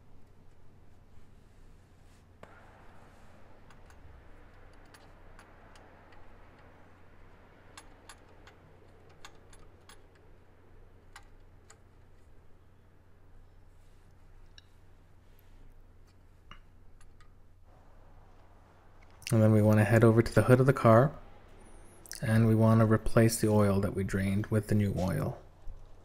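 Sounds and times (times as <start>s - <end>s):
faint low hum: 0.0s - 26.0s
ratchet wrench clicking: 4.6s - 10.3s.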